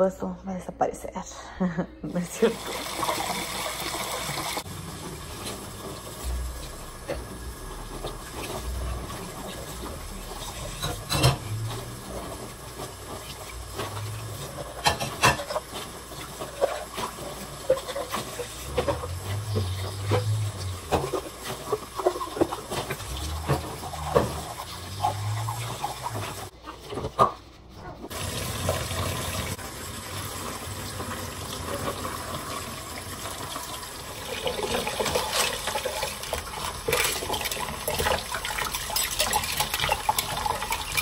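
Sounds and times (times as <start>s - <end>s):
tap water running: 2.2s - 26.5s, 28.0s - 41.0s
dishes and utensils clinking: 8.4s - 12.5s, 13.1s - 27.5s, 34.6s - 41.0s.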